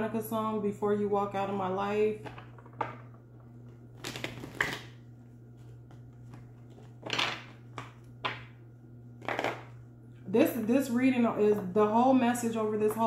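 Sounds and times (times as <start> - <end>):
steady low hum: 0.0 - 13.0
cards being shuffled: 4.0 - 5.0, 9.2 - 9.7.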